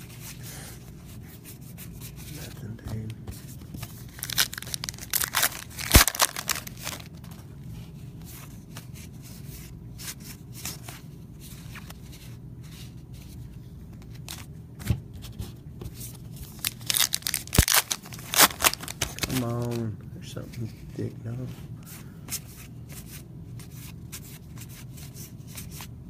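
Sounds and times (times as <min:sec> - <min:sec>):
steady low hum: 0:00.0 - 0:26.0
cards flicking and rustling: 0:02.4 - 0:07.5, 0:16.2 - 0:19.9.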